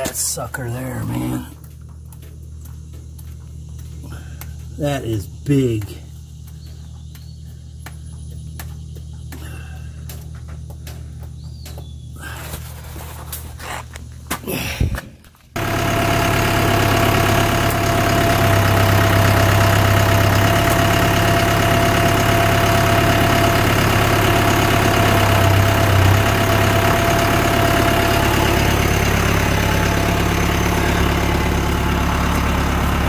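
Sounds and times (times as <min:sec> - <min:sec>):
thin steady whine: 0:00.0 - 0:09.3
diesel tractor engine idling: 0:00.0 - 0:33.0.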